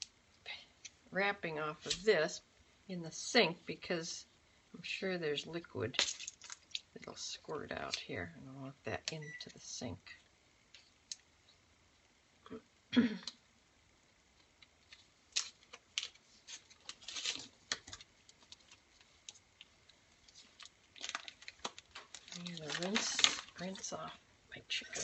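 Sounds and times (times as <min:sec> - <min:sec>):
plastic wrapping clicks and rustles: 0:06.0 - 0:07.0, 0:14.4 - 0:24.1.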